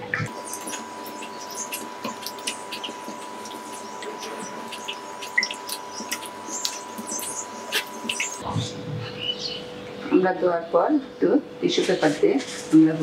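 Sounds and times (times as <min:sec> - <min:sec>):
water splashing in a bowl: 0:00.3 - 0:08.4.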